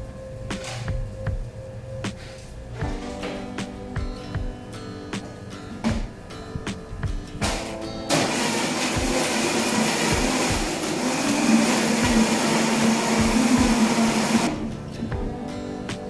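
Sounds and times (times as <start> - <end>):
blender motor whirring: 8.1 - 14.6.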